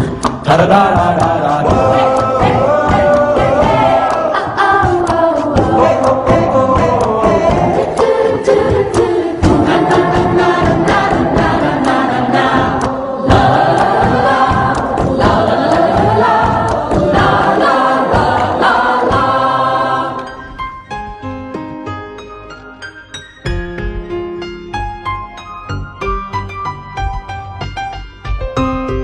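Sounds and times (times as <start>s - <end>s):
steady beat: 0.0s - 20.2s
piano notes: 0.0s - 29.0s
men singing in chorus: 0.4s - 20.3s.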